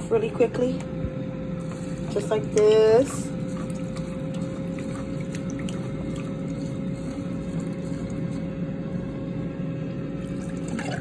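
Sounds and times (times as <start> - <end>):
low hum with faint tone: 0.0 - 11.0
small splashes and drips: 3.5 - 8.3.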